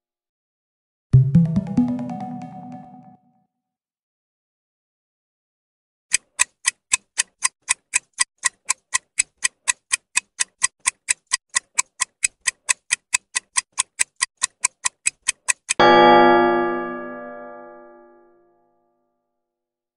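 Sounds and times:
clock ticking: 0:06.1 - 0:15.9
loud ringing chime: 0:15.8 - 0:18.1.

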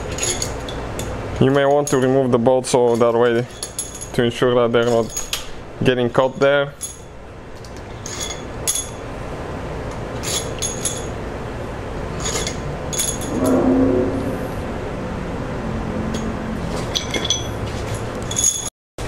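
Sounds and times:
steady background hum: 0:06.8 - 0:18.2
brief low hum: 0:13.2 - 0:16.9.

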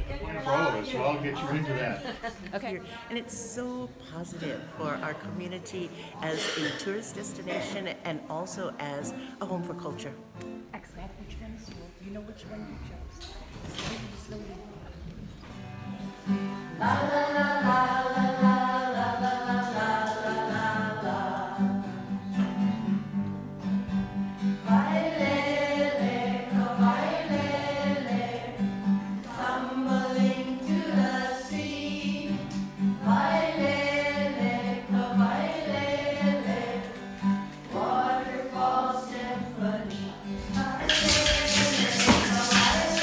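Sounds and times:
strummed acoustic guitar: 0:15.5 - 0:43.0
children singing in unison: 0:16.7 - 0:22.0, 0:24.6 - 0:37.0, 0:37.7 - 0:43.0.

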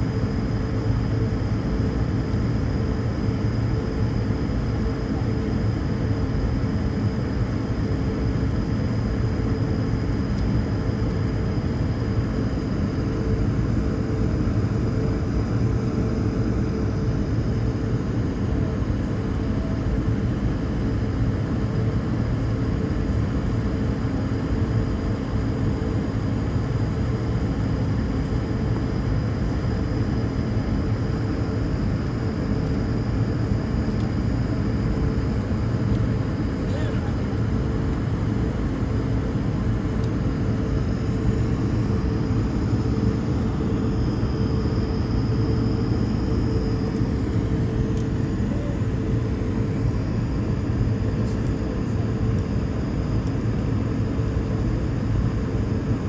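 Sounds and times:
jet engines idling: 0:00.0 - 0:56.0
high whine: 0:29.5 - 0:54.3.

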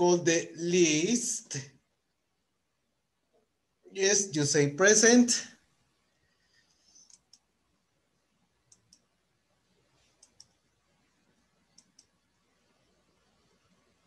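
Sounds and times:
faint sharp clicks in pairs: 0:07.0 - 0:07.5, 0:08.7 - 0:09.2, 0:10.0 - 0:10.6, 0:11.7 - 0:12.2.

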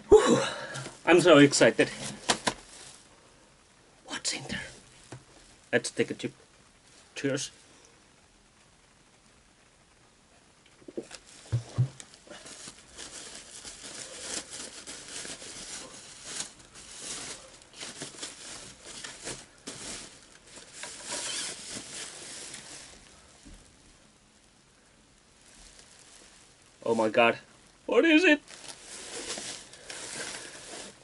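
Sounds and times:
plastic bag rustling and crinkling: 0:00.2 - 0:03.3, 0:10.8 - 0:23.9, 0:25.4 - 0:31.0
dull knocks: 0:11.5 - 0:12.0.

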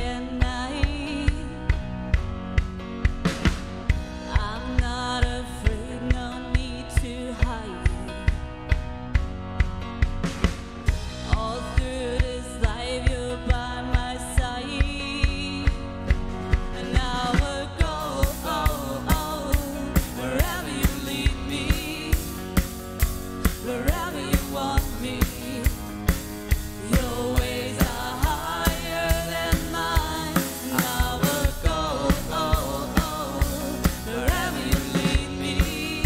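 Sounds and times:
drum kit beat: 0:00.0 - 0:36.0
keyboard: 0:00.0 - 0:36.0
people singing: 0:16.7 - 0:36.0.

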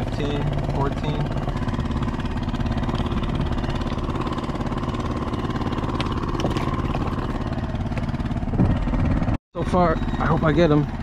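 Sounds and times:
low engine drone: 0:00.0 - 0:11.0.

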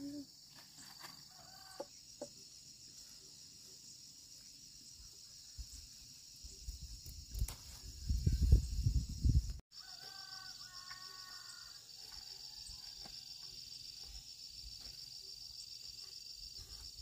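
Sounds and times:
insects trilling: 0:00.0 - 0:17.0
leaves and vines rustling: 0:06.7 - 0:09.4.

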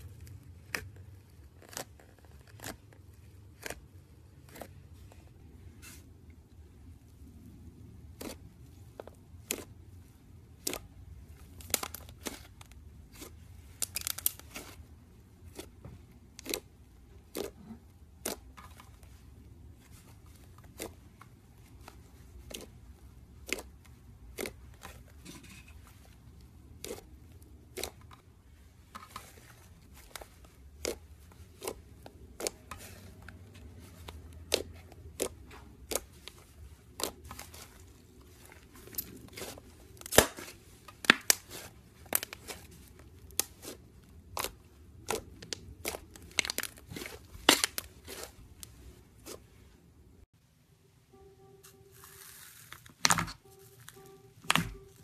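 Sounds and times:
slime being squished by hand: 0:08.0 - 0:25.2, 0:25.8 - 0:49.6.

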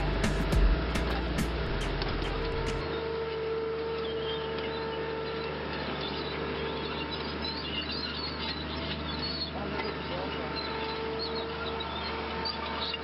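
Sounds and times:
machine engine idling: 0:00.0 - 0:13.0
birds chirping: 0:04.0 - 0:13.0.

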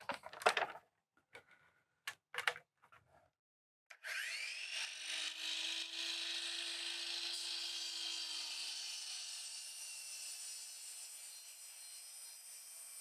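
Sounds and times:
clicks and knocks of handling: 0:00.0 - 0:03.2
miter saw motor whining: 0:04.0 - 0:06.5.

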